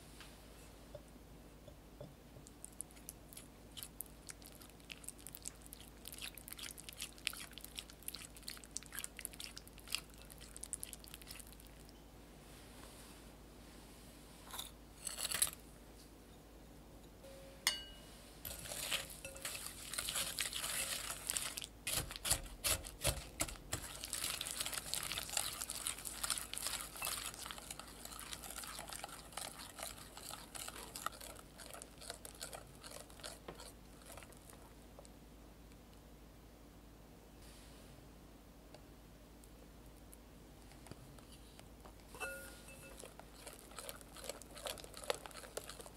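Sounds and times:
whisk beating in glass bowl: 0:18.5 - 0:33.4.

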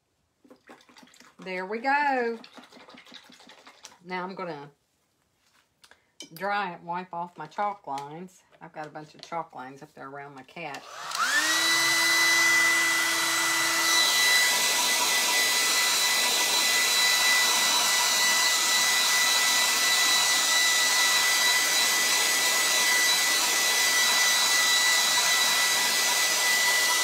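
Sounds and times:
hair dryer running: 0:10.7 - 0:27.0.

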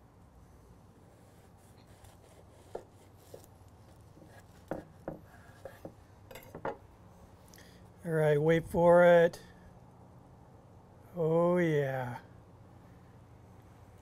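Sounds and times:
knife cutting through bread roll: 0:01.0 - 0:06.0
knife tapping on wooden board: 0:04.2 - 0:06.8.

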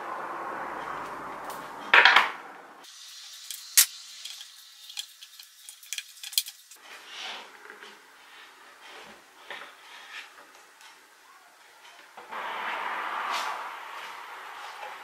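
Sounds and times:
loud scrape: 0:08.2 - 0:10.4, 0:11.8 - 0:15.0.

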